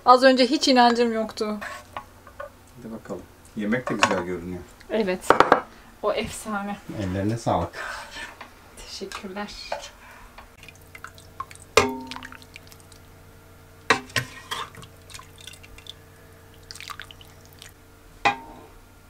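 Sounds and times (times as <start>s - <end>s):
kitchenware clattering: 5.3s - 5.7s, 13.9s - 15.9s.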